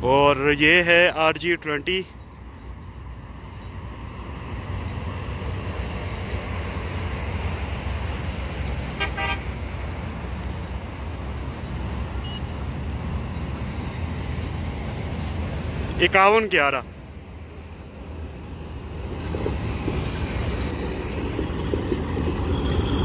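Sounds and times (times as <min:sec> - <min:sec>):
locomotive engine rumbling: 0:00.0 - 0:23.0
train horn toot: 0:09.0 - 0:09.6.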